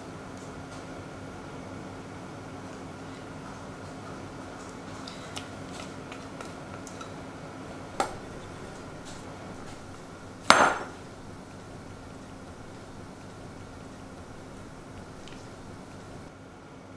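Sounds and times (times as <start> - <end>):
glass bowl clacking on counter: 8.0 - 16.2
glass bowl tapping metal sieve: 8.0 - 16.2.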